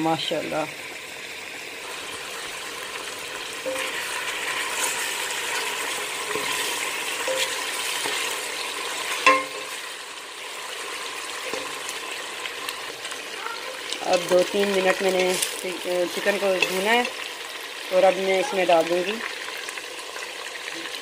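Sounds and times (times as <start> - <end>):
chicken sizzling in oil: 0.0 - 21.0
spoon clanking against pot: 3.7 - 4.0, 7.2 - 8.2, 9.2 - 9.8.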